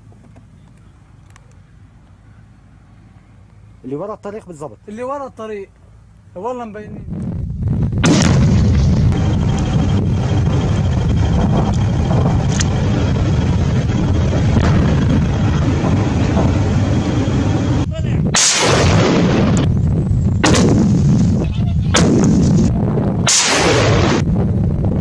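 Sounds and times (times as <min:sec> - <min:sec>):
rocket launch blasts: 0:07.9 - 0:19.8, 0:20.4 - 0:24.6
loud rushing noise: 0:08.0 - 0:19.8, 0:20.4 - 0:25.0.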